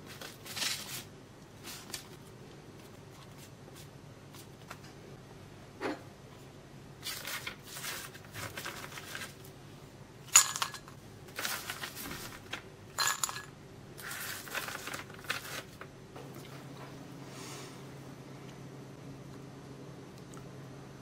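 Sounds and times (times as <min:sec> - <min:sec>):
bread cubes rustling on paper: 0:00.0 - 0:04.8, 0:07.0 - 0:09.5, 0:11.3 - 0:13.2, 0:14.0 - 0:15.9.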